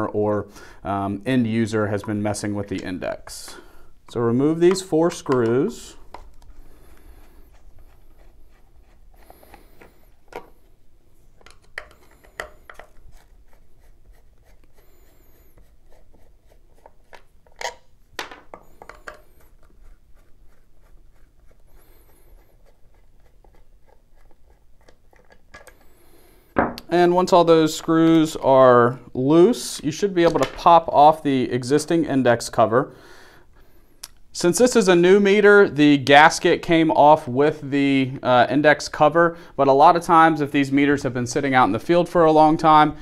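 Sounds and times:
screwdriver scraping: 0:04.1 - 0:10.8.

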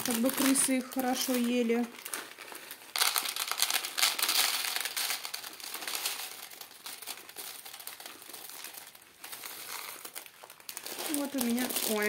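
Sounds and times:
plastic bag crinkling: 0:00.0 - 0:12.0
flakes pouring into plastic tray: 0:02.4 - 0:12.0.

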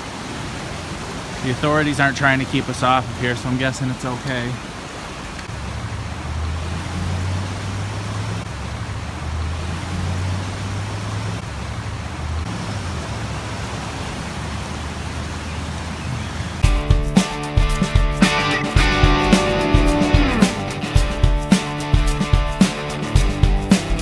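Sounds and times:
flooding river rushing: 0:00.0 - 0:24.0
road traffic drone: 0:00.0 - 0:24.0
guitar music: 0:16.6 - 0:24.0.

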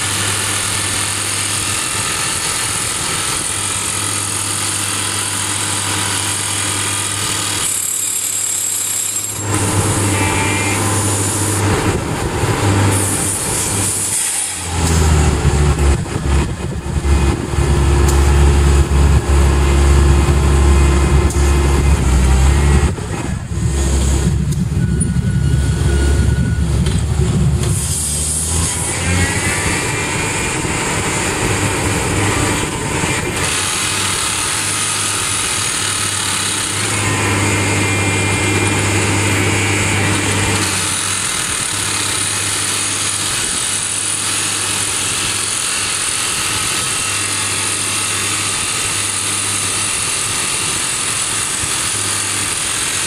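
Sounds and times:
rock drill hammering: 0:00.0 - 0:12.0, 0:27.6 - 0:53.0
rig engine running: 0:00.0 - 0:53.0.

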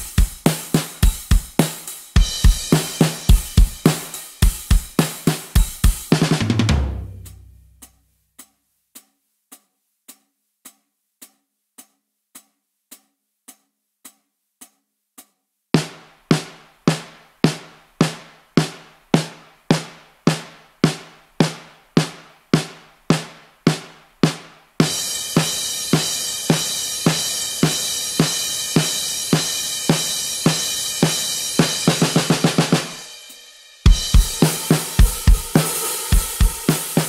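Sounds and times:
programmed drum beat: 0:00.0 - 0:08.5, 0:14.6 - 0:37.0
loud drum strikes: 0:01.0 - 0:07.8, 0:33.9 - 0:37.0.

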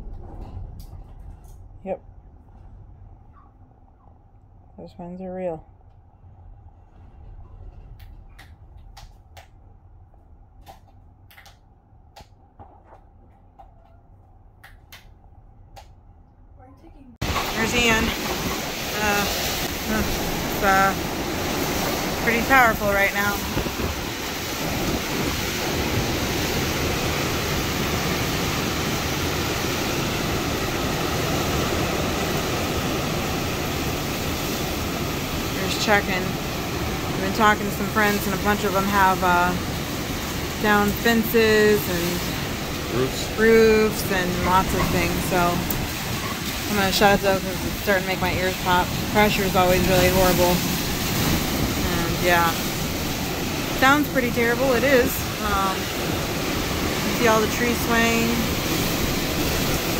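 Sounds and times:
hurricane wind rumbling: 0:00.0 - 0:04.8, 0:17.2 - 0:59.9
driving rain: 0:17.2 - 0:59.9.

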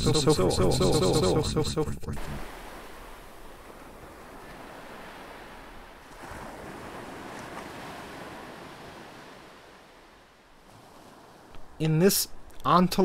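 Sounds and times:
soft wash of noise: 0:02.2 - 0:12.1.

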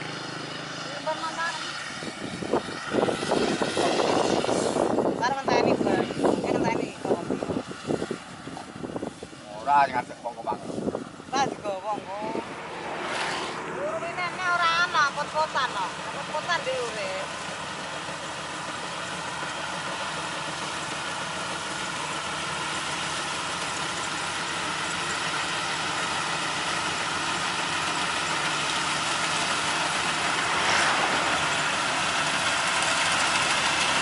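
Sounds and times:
combine harvester running: 0:00.0 - 0:34.0.

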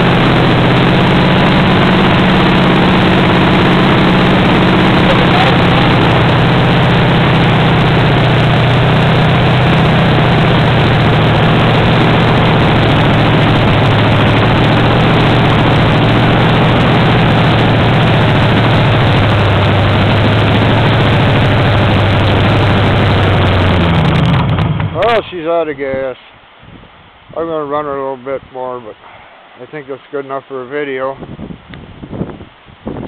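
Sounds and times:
unmuffled engine running: 0:00.0 - 0:25.3.

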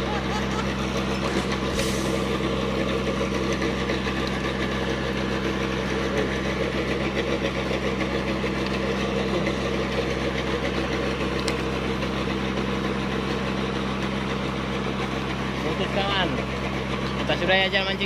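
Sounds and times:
boat engine drone: 0:00.0 - 0:18.0.

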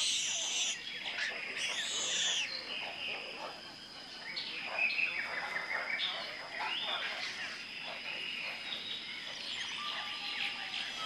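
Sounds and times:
loud arching bird calls: 0:00.0 - 0:02.7
birds calling and chirping: 0:00.0 - 0:11.0.

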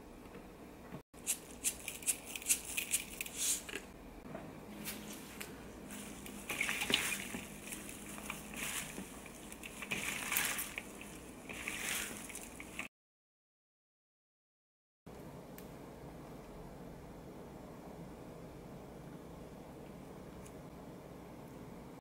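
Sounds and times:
chives crackling and rustling: 0:01.2 - 0:03.7, 0:04.8 - 0:12.9
wet squishing: 0:05.9 - 0:12.9.

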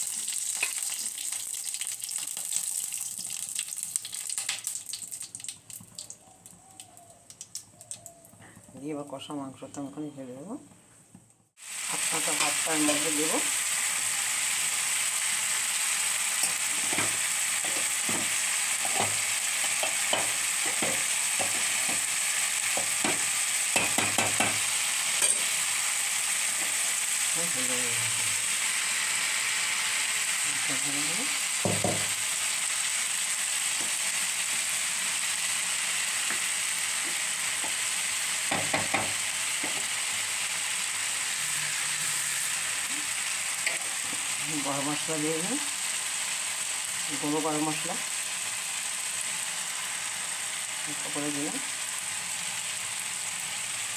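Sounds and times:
curry sizzling in a frying pan: 0:00.0 - 0:09.2, 0:11.5 - 0:53.9
spoon knocking against pan: 0:19.8 - 0:22.0, 0:22.8 - 0:24.6, 0:38.5 - 0:39.9.

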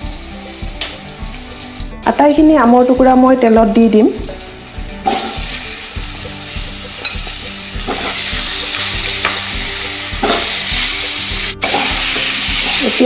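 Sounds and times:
mango pieces sizzling in oil: 0:00.0 - 0:02.0, 0:04.1 - 0:13.0
knocks in the pan: 0:05.0 - 0:05.5, 0:07.8 - 0:09.5.

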